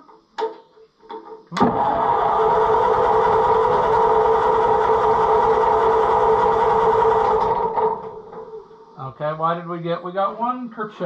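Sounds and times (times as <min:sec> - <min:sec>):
tractor engine cranking: 0:01.5 - 0:08.7
starter motor whine: 0:01.6 - 0:08.8.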